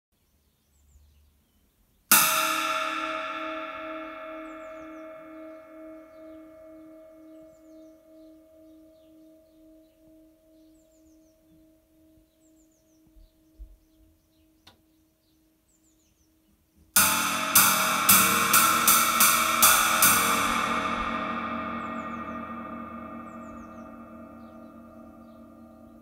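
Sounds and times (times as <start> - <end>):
cymbal struck and ringing: 2.1 - 10.0, 17.0 - 26.0.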